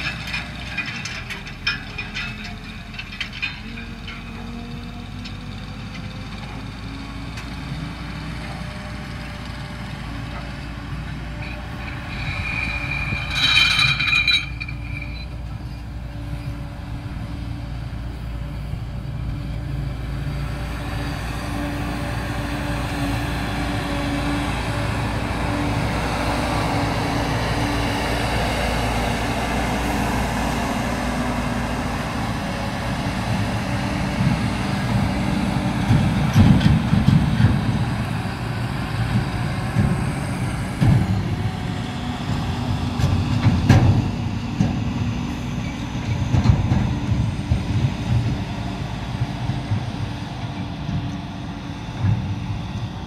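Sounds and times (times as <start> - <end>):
harvester engine and working gear: 0.0 - 53.0
high-pitched squeal: 11.4 - 15.8.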